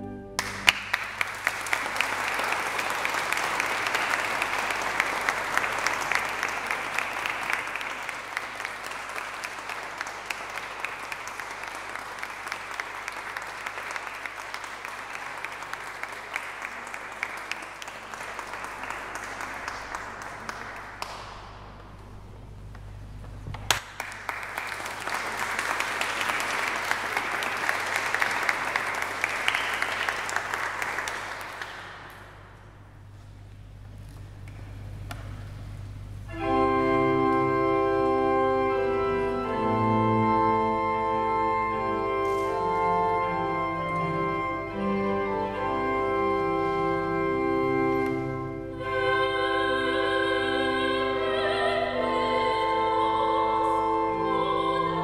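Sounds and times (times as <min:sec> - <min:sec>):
audience applauding: 0:00.4 - 0:35.5.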